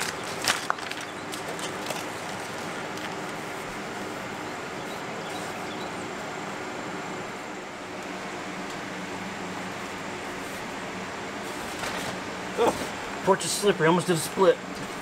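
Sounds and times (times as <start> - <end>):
backing paper crackling: 0.0 - 4.3, 11.4 - 12.9
birds calling faintly: 0.0 - 6.7.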